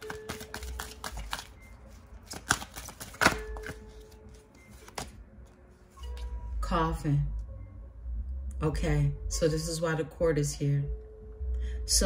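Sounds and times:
cards being shuffled: 0.0s - 5.2s.

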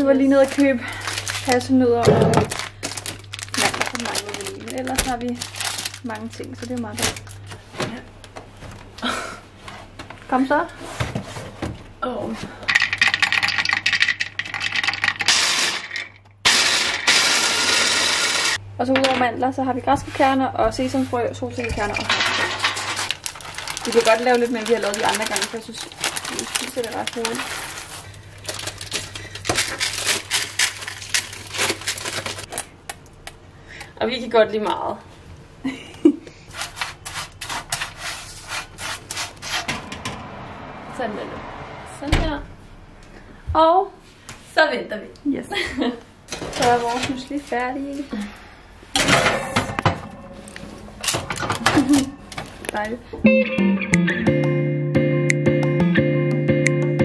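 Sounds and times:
nuts clattering in plastic bowl: 12.7s - 16.2s
blender blade whirring: 15.2s - 18.6s
spatula scraping baking tray: 36.5s - 40.0s.

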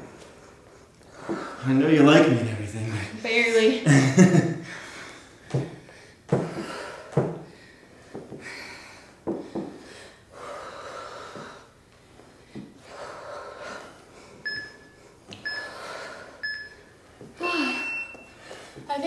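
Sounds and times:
people breathing hard: 0.0s - 1.7s, 4.6s - 18.9s
bodies knocking on floor: 5.5s - 7.5s, 9.2s - 9.8s
short electronic beeps: 17.6s - 18.3s.

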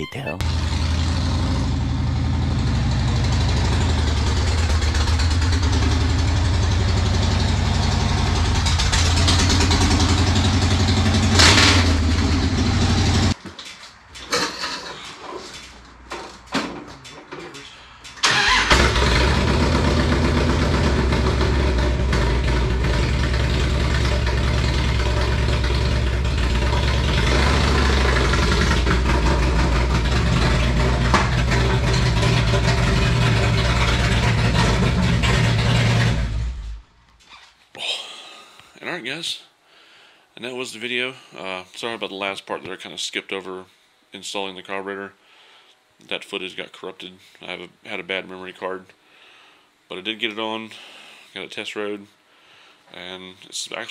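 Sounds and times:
motorcycle engine idling and revving: 0.4s - 13.4s, 18.4s - 36.8s.

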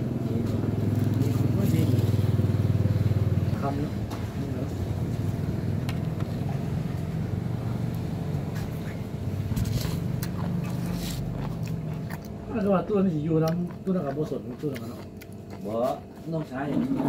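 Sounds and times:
engine idling: 0.0s - 11.8s.

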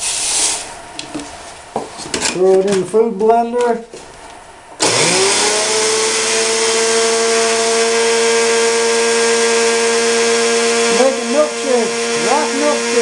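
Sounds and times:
blender motor whine: 4.8s - 13.0s.

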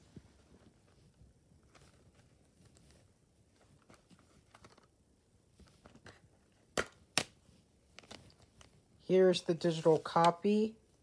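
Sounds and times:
plastic case clicks and rustles: 3.7s - 5.0s, 5.7s - 8.8s.

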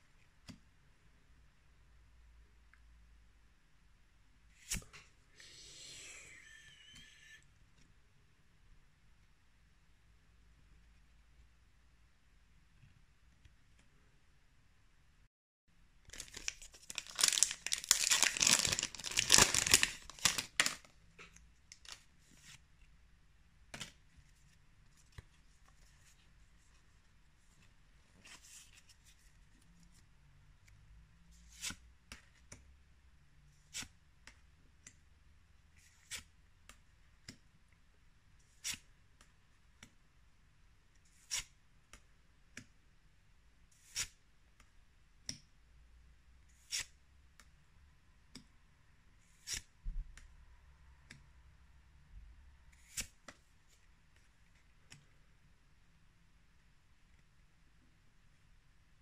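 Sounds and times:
foil wrapper tearing and crinkling: 16.1s - 20.8s.

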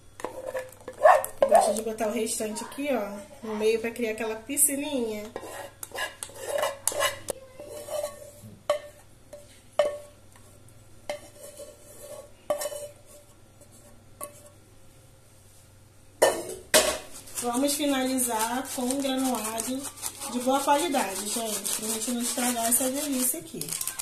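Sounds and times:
spatula scraping metal saucepan: 5.2s - 9.4s, 11.1s - 14.5s, 17.2s - 24.0s.

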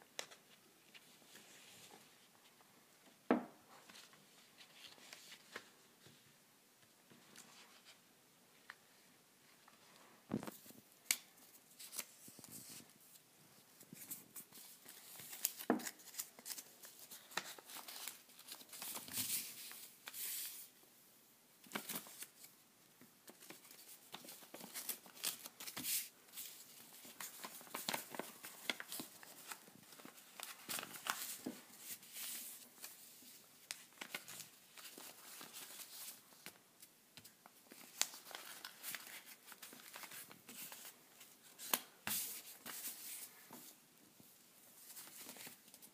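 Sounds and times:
paper crinkling and rustling: 13.8s - 20.7s, 21.6s - 22.5s, 23.2s - 36.6s, 37.2s - 43.8s, 44.8s - 45.9s
paper crease crackles: 23.3s - 36.6s, 37.2s - 43.6s.

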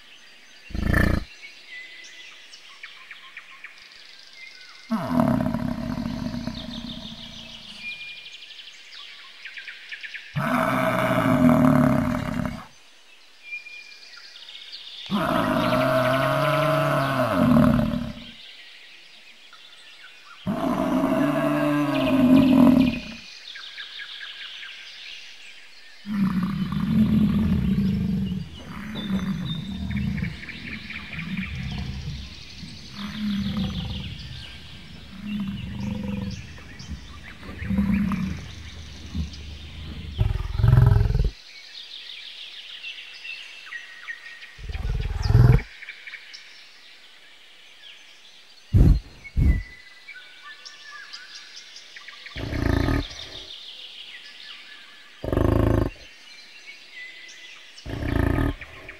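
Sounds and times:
bison bellowing: 0.7s - 1.3s, 26.1s - 41.4s, 52.4s - 53.4s, 57.9s - 58.9s
bison grunting: 0.7s - 1.3s, 4.9s - 8.0s, 15.1s - 18.3s, 26.1s - 41.4s, 44.6s - 45.7s, 48.8s - 49.7s, 52.4s - 53.5s, 55.2s - 56.1s, 57.9s - 58.9s.

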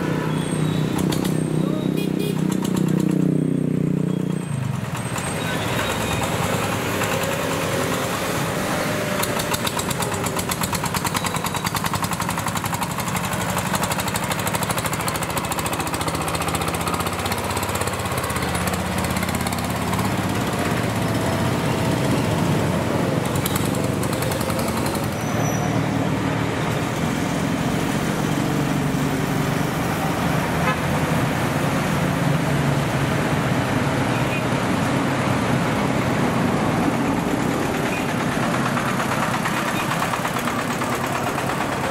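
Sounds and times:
diesel tractor engine chugging: 0.0s - 41.9s
road traffic noise: 0.0s - 41.9s.

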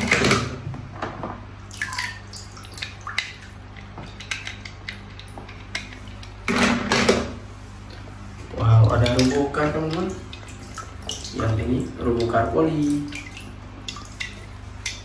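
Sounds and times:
water dripping: 1.6s - 6.4s, 7.8s - 15.0s.

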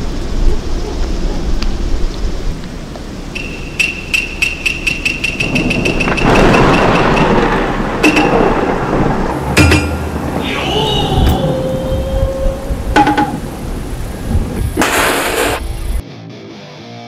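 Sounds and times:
rushing noise: 0.0s - 16.0s
steady high tone: 3.4s - 7.4s
rapid ticking: 3.4s - 10.4s
low rumble: 5.4s - 14.8s.

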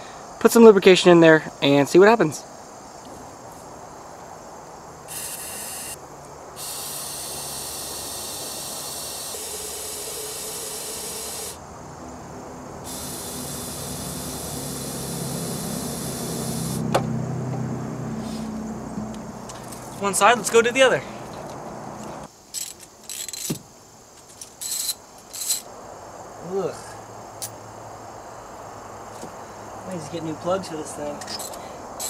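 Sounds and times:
aerosol spray hissing: 12.9s - 16.8s.

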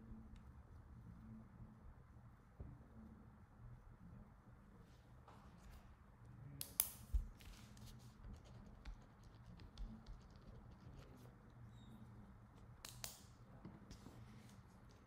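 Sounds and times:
faint clicks and taps: 6.6s - 11.6s.

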